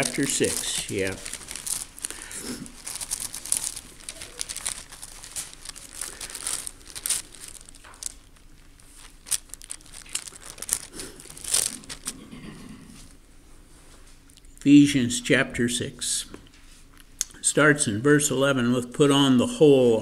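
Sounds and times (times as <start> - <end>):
book pages rustling: 0.0 - 12.2
page turns: 0.0 - 12.2.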